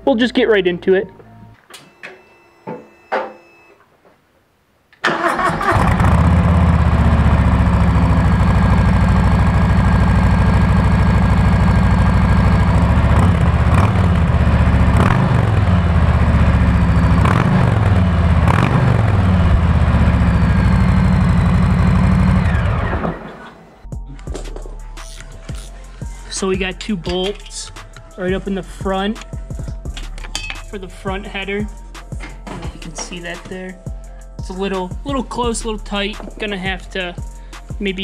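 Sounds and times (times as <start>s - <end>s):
motorcycle engine idling: 6.0s - 23.1s
motorcycle throttle blips: 6.6s - 23.4s.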